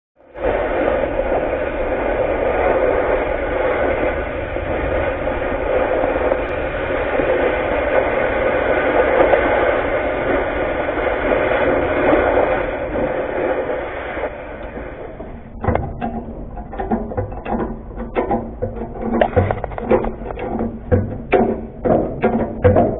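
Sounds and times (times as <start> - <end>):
cutting torch hissing: 0.3 - 15.8.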